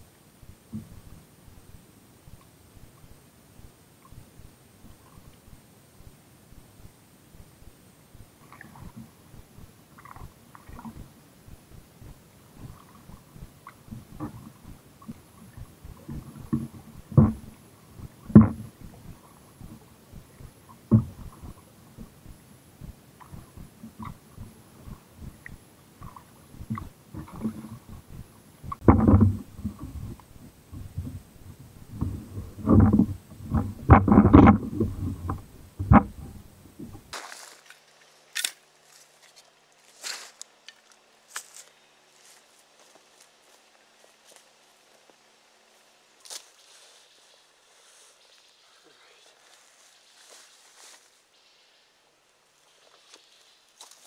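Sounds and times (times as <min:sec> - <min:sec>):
paddle strokes thumping: 0:12.0 - 0:28.0, 0:28.6 - 0:31.2
kayak hull bumping and scraping: 0:12.7 - 0:19.8, 0:20.7 - 0:22.2, 0:28.7 - 0:31.3, 0:31.9 - 0:37.8
faint rustles of gear: 0:31.9 - 0:51.4
sharp clicks of camp gear: 0:37.1 - 0:41.8.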